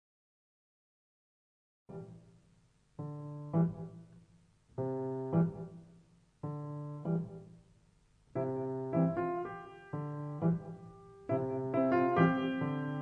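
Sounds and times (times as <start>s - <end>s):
solo piano music: 3.0s - 4.1s, 4.8s - 7.6s, 8.3s - 13.0s.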